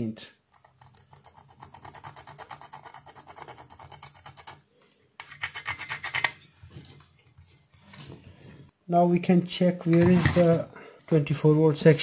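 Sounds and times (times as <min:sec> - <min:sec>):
metal tool scraping circuit board: 0:05.2 - 0:06.4.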